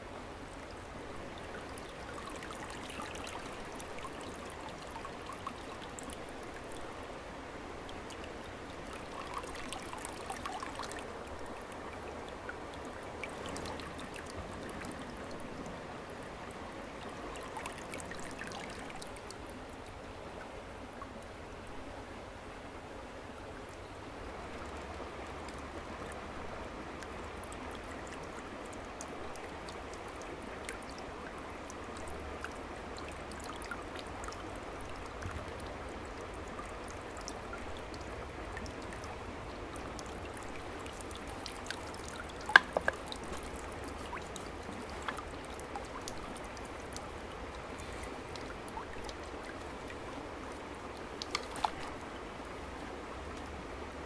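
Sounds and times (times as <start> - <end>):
creek water trickling and pouring: 0.0 - 54.0
sharp water splashes: 41.7 - 45.4, 51.1 - 52.0.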